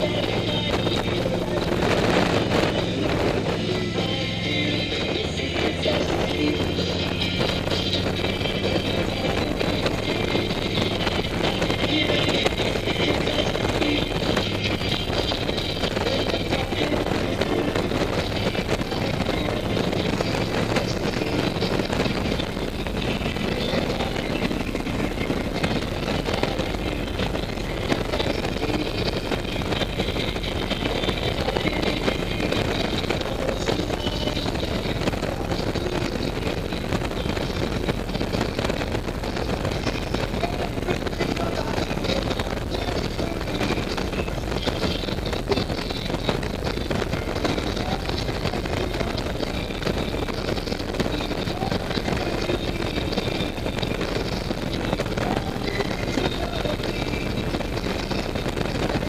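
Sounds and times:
motorcycle engine at road speed: 0:00.0 - 0:59.0.

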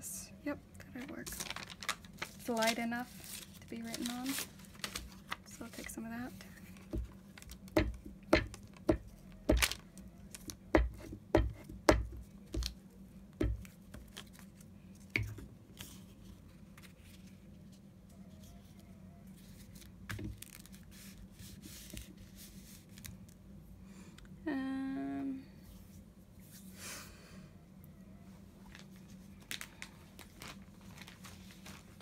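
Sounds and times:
low steady hum: 0:00.0 - 0:32.0
paper rustling: 0:01.0 - 0:07.7, 0:13.6 - 0:17.8, 0:19.4 - 0:23.3, 0:28.6 - 0:32.0
paper crackling: 0:01.0 - 0:10.6, 0:13.6 - 0:17.6, 0:19.4 - 0:23.4, 0:28.6 - 0:32.0.

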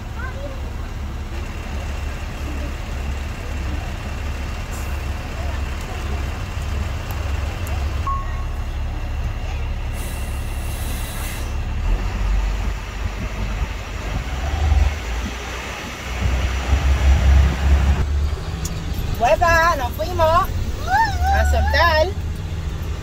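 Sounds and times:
diesel truck engine rumble: 0:00.0 - 0:23.0
air hiss: 0:09.9 - 0:11.6.

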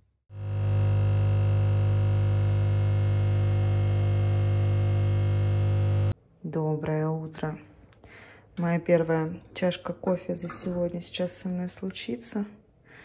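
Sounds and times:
espresso machine pump buzzing: 0:00.3 - 0:06.2.

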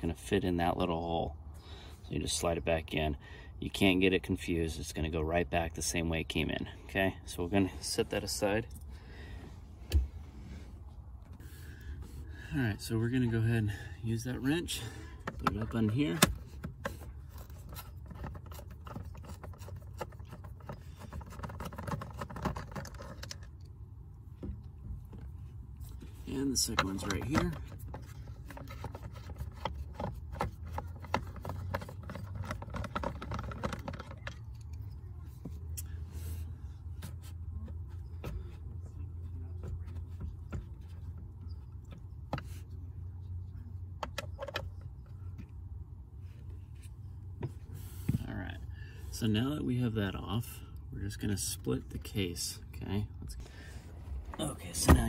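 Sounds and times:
steady low hum: 0:00.0 - 0:55.0
nut driver clicking and scraping: 0:15.2 - 0:23.7.

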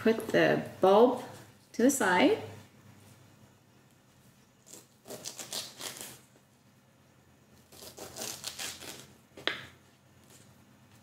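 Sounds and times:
knife scraping skin off a bulb: 0:04.6 - 0:06.4, 0:07.6 - 0:09.2.

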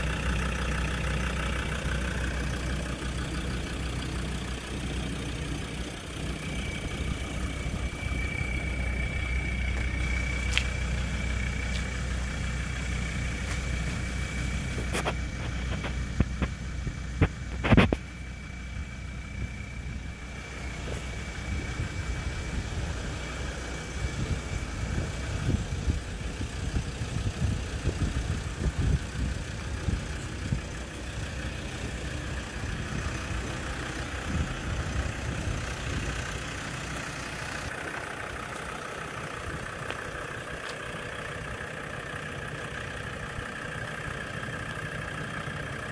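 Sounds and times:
ambulance engine idling: 0:00.0 - 0:45.9
wind rumble on microphone: 0:23.9 - 0:30.8, 0:34.2 - 0:36.3.

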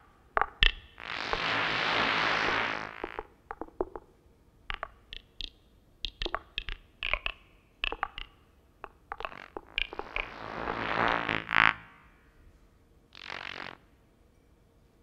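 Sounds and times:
electronic clicks: 0:04.7 - 0:10.3.

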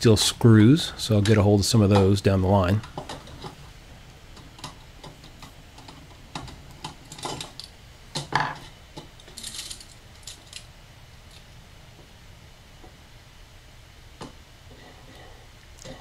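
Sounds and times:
metal stove parts clinking: 0:06.4 - 0:10.7.

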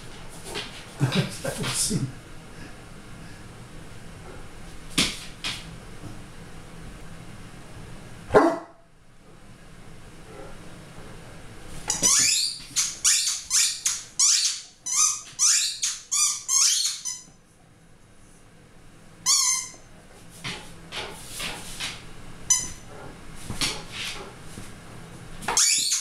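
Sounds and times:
young dog barking: 0:08.3 - 0:08.7.

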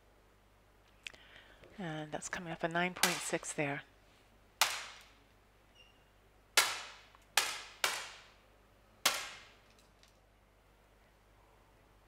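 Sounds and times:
air pistol shots with echo: 0:06.6 - 0:08.3, 0:09.0 - 0:09.6.

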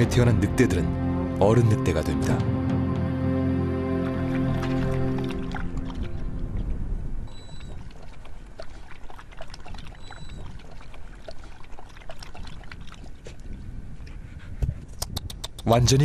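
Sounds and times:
wolf lapping water: 0:04.0 - 0:15.6.

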